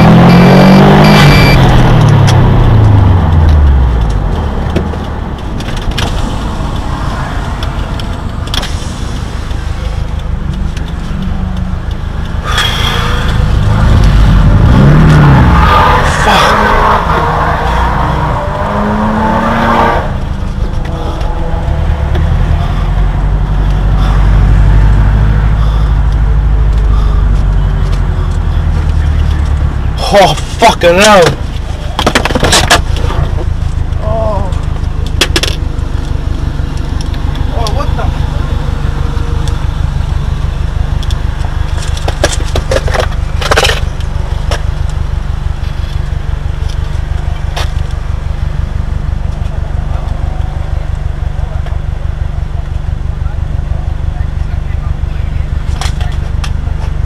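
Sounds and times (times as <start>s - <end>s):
car engine droning: 0.0s - 57.0s
clicks and rattles: 41.0s - 45.0s.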